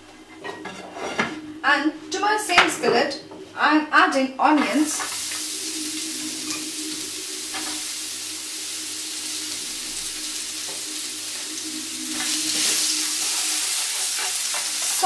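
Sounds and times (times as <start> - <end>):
onions sizzling in a pan: 4.7 - 15.0
pan being stirred and shaken: 12.2 - 15.0.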